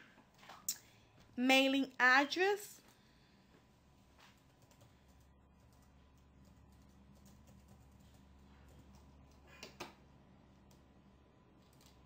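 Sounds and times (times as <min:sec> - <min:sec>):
computer keyboard typing: 0:04.4 - 0:10.0, 0:11.6 - 0:12.0.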